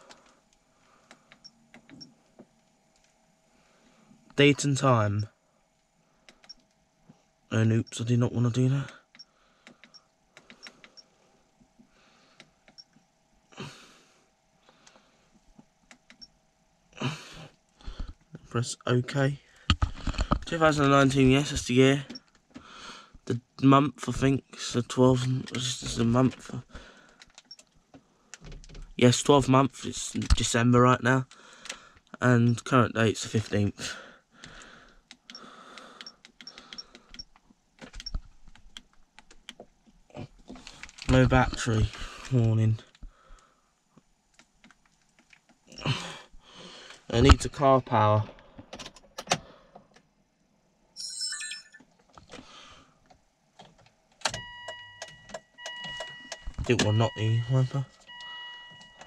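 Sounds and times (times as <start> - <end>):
short high beep: 51.0 - 51.8.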